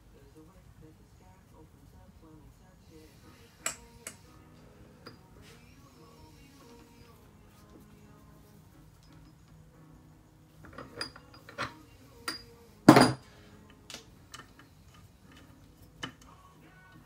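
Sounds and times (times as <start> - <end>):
metal tools clinking on workbench: 10.6 - 13.2.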